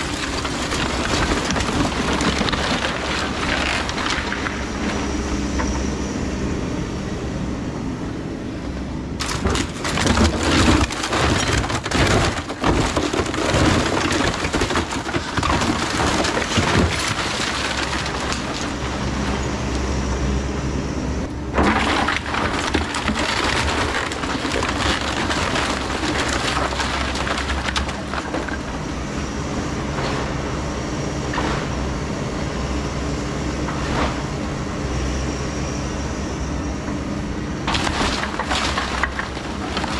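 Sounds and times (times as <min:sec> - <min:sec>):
debris crashing down: 0:00.0 - 0:05.0, 0:09.2 - 0:19.5, 0:21.5 - 0:28.9, 0:37.7 - 0:39.9
wood cracking: 0:00.0 - 0:05.0, 0:09.2 - 0:19.4, 0:21.6 - 0:28.8, 0:37.7 - 0:39.9
excavator diesel engine running: 0:00.0 - 0:39.9.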